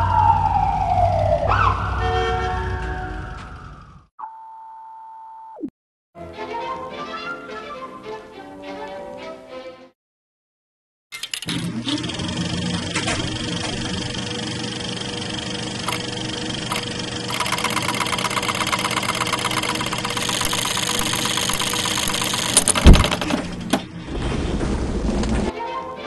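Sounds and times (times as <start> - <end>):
mechanical clattering of cranked viewer: 11.1 - 12.3, 12.9 - 23.8.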